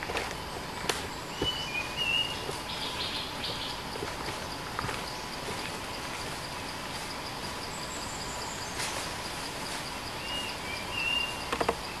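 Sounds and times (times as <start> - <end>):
forest background noise: 0.0 - 12.0
insects chirping: 0.0 - 12.0
whistled bird notes: 1.3 - 3.7, 10.2 - 11.5.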